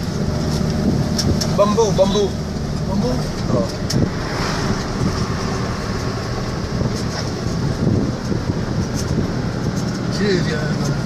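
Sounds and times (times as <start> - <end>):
vehicle engine and tyre rumble: 0.0 - 11.0
light rattling clicks: 6.8 - 11.0.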